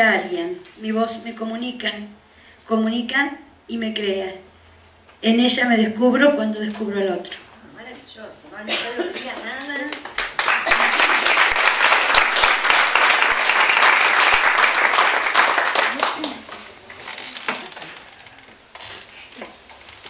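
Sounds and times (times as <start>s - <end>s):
audience applauding: 9.4s - 18.3s.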